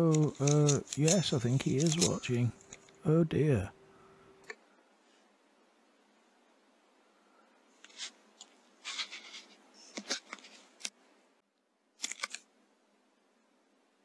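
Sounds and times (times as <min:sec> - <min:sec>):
faint clicks and rustles: 0:00.0 - 0:03.0.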